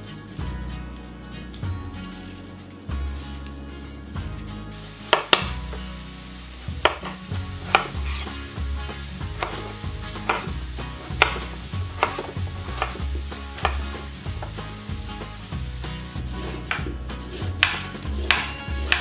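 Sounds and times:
knife knocking on wooden board: 0:06.8 - 0:08.0, 0:11.2 - 0:13.0, 0:13.6 - 0:13.8.

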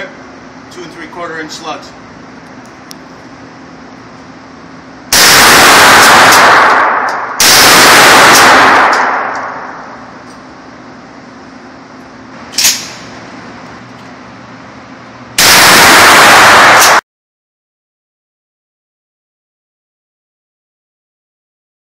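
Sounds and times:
shotgun blasts: 0:05.1 - 0:10.0, 0:15.4 - 0:17.0.

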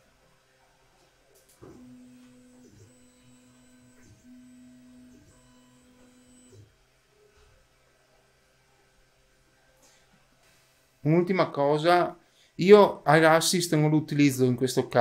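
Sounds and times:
stepper motors humming: 0:01.6 - 0:06.6.

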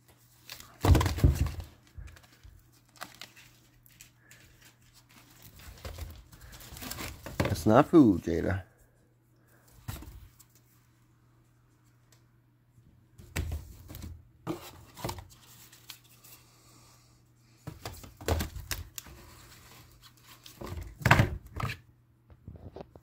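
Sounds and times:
cardboard tubes knocking and rustling: 0:00.5 - 0:02.6, 0:05.4 - 0:07.8, 0:13.2 - 0:15.4, 0:17.6 - 0:23.0.

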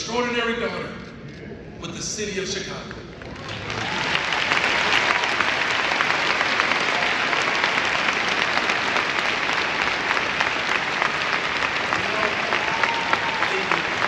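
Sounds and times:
large crowd applauding: 0:03.2 - 0:14.0.

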